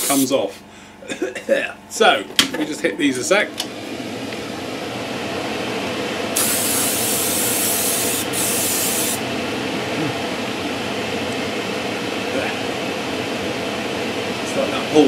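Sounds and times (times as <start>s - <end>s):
airbrush spraying hiss: 0.0s - 0.3s, 6.4s - 9.2s.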